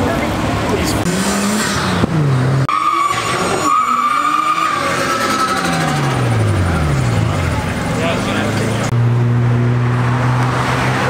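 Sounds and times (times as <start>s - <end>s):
tyres squealing: 2.7s - 7.2s.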